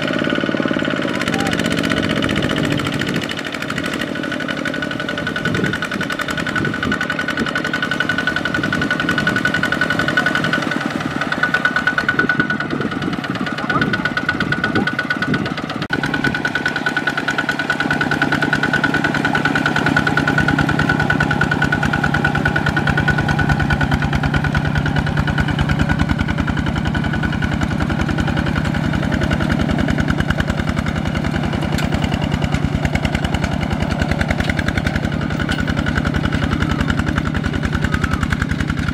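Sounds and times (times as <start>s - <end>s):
diesel engine chugging: 0.0s - 38.9s.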